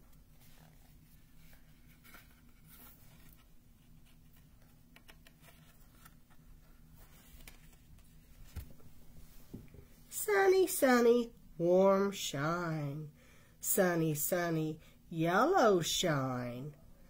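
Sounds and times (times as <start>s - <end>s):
low room hum: 0.0s - 17.0s
cardboard book pages turning: 0.1s - 8.9s.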